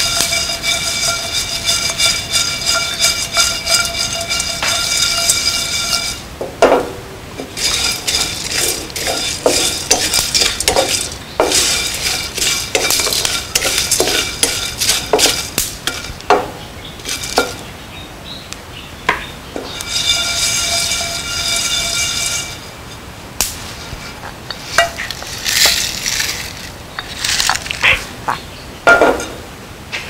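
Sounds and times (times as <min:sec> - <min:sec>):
seeds rattling against pan: 0:00.0 - 0:06.2, 0:07.4 - 0:16.3, 0:17.0 - 0:17.7, 0:19.7 - 0:22.7, 0:24.5 - 0:27.9
spatula scraping a wok: 0:00.0 - 0:06.3, 0:07.4 - 0:16.2, 0:17.0 - 0:17.7, 0:19.6 - 0:22.7, 0:23.8 - 0:28.0.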